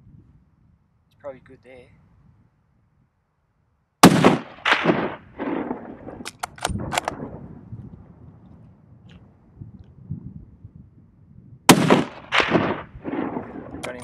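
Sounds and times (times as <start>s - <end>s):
rifle shots echoing: 4.0s - 7.4s, 11.7s - 14.0s
sharp clicks: 6.2s - 7.2s.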